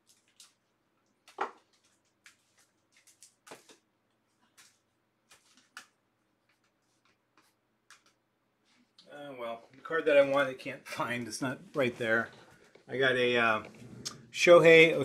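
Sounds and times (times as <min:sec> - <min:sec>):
cards clicking and tapping: 0:01.2 - 0:03.8, 0:04.6 - 0:08.2.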